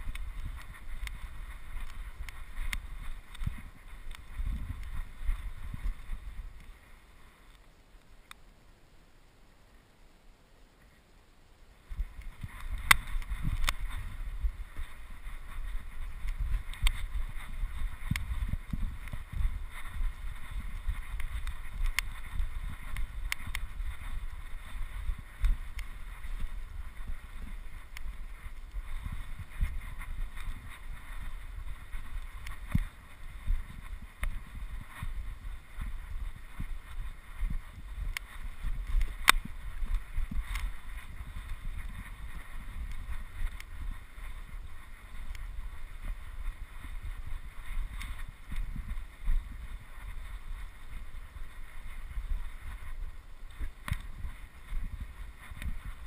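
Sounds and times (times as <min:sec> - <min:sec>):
wind buffeting microphone: 0:00.0 - 0:07.1, 0:11.9 - 0:56.0
sharp clicks: 0:12.2 - 0:14.0, 0:16.2 - 0:24.8, 0:38.1 - 0:40.7.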